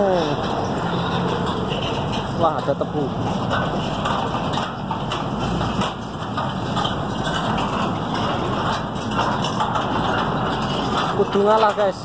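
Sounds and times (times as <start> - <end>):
train wagons rattling on rails: 0.0 - 12.0.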